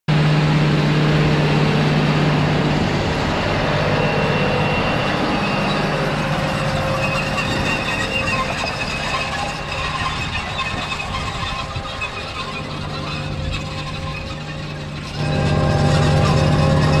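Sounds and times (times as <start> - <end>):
diesel tractor engine under load: 0.1 - 17.0
faint high squeal: 3.6 - 17.0.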